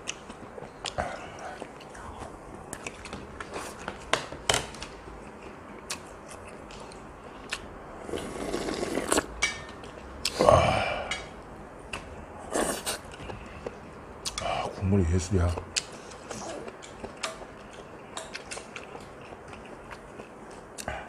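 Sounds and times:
slurping broth: 8.0 - 9.3.

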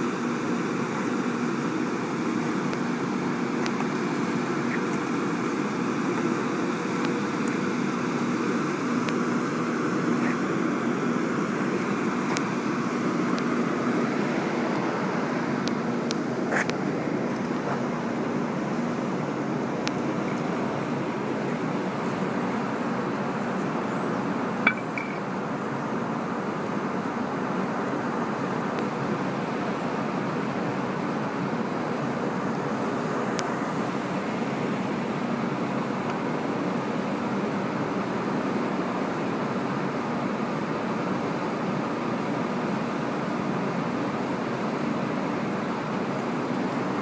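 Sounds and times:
low hum and rumble: 0.0 - 38.9.

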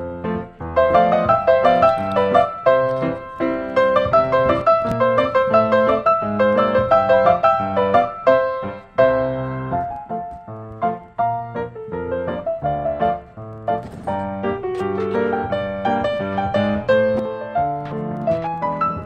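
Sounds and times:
piano music: 0.0 - 19.0.

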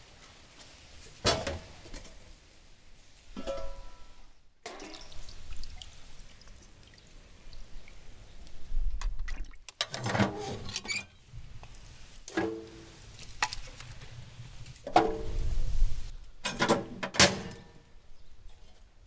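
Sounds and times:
liquid dripping into a pot: 4.6 - 9.8.

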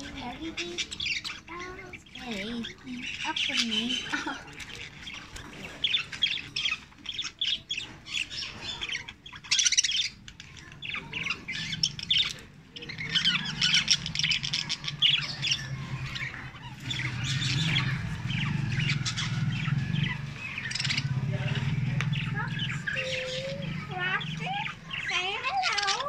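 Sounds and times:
budgerigars chattering: 0.0 - 26.0.

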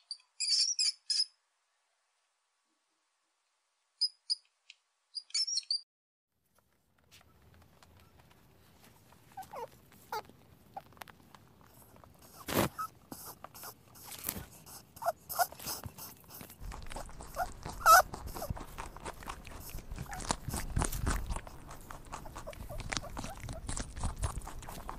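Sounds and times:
rabbit squeaks: 0.0 - 1.3, 9.2 - 10.9, 11.8 - 24.9.

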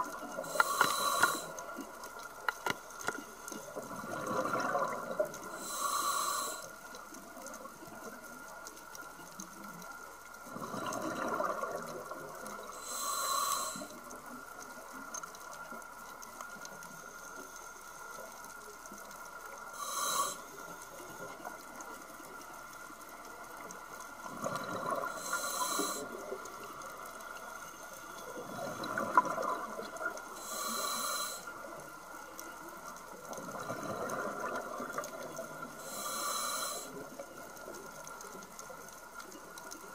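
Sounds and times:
exhaled air bubbling: 0.0 - 8.2, 10.4 - 14.9, 23.4 - 27.4, 28.2 - 32.0, 33.0 - 38.6
regulator hissing inhale: 0.3 - 1.8, 5.5 - 6.9, 12.7 - 14.1, 19.7 - 21.3, 25.0 - 26.4, 30.2 - 31.7, 35.8 - 37.0.

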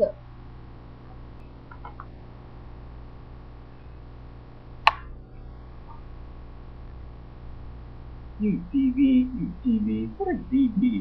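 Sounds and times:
low electrical mains hum: 0.0 - 11.0
sharp click: 4.9 - 5.1.

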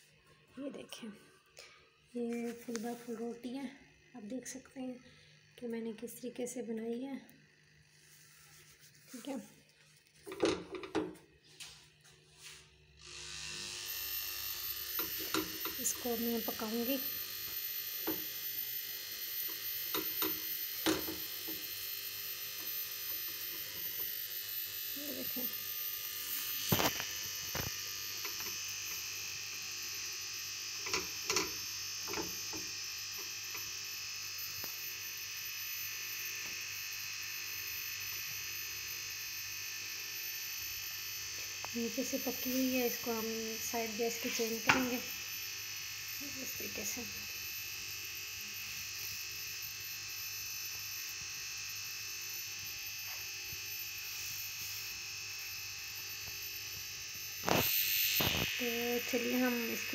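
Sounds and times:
stove hissing: 0.0 - 59.9
buzzing hiss: 57.4 - 59.9.

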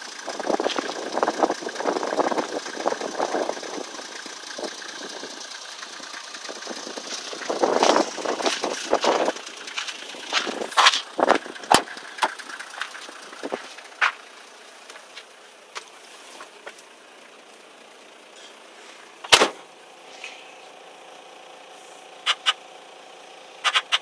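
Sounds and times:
vehicle engine idling faintly: 0.0 - 24.0
loud thump: 19.3 - 19.6
sharp clicks and knocks: 22.3 - 22.6, 23.6 - 24.0.

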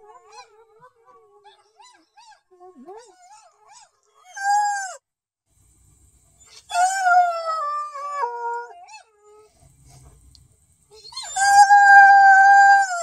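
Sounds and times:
dog howling: 6.6 - 9.5, 11.0 - 13.0.

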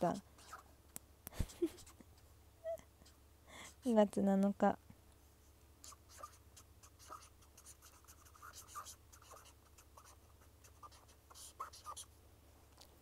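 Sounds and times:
pen scratching on paper: 0.4 - 0.6, 5.8 - 12.1.

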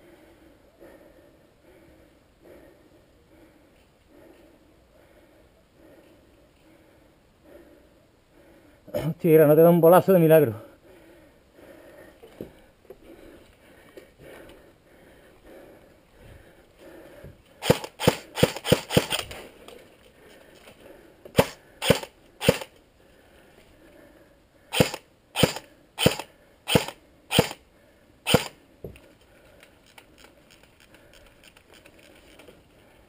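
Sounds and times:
airsoft rifle shots: 17.6 - 19.3, 21.4 - 22.7, 24.7 - 27.6, 28.3 - 28.6.

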